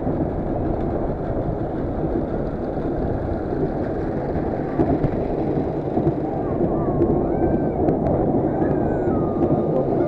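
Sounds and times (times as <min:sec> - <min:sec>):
ride cars rumbling: 0:00.0 - 0:10.0
wind noise: 0:00.0 - 0:10.0.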